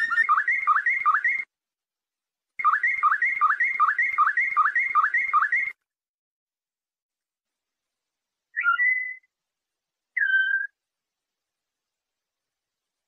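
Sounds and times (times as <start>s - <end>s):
canary singing whistled notes: 0.0s - 1.5s, 2.6s - 5.8s, 8.5s - 9.3s, 10.2s - 10.8s.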